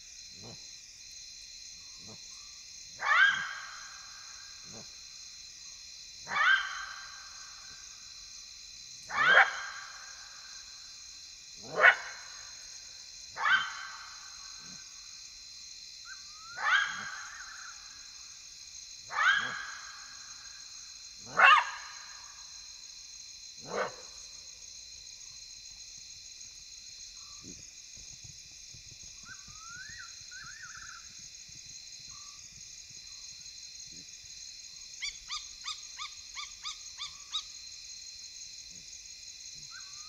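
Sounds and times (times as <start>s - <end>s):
crickets chirping: 0.0s - 40.0s
jackal yelping barks: 3.0s - 3.8s, 6.3s - 7.0s, 9.1s - 9.9s, 11.6s - 12.3s, 13.4s - 14.0s, 16.6s - 17.4s, 19.1s - 19.8s, 21.2s - 22.0s, 23.6s - 24.1s.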